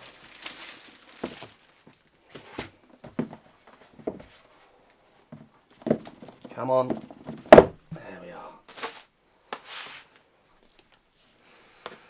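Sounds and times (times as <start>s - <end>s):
plastic shrink-wrap crinkle: 0.0s - 2.6s.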